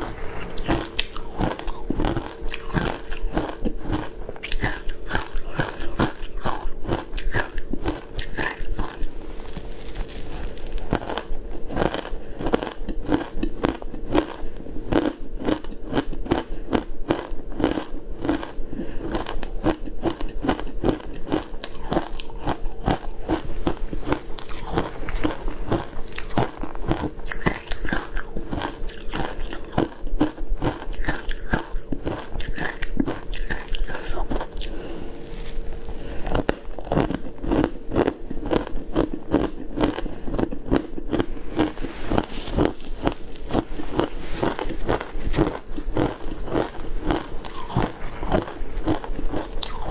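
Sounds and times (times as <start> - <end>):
shaved ice crunching: 4.6 - 12.1, 33.4 - 37.1.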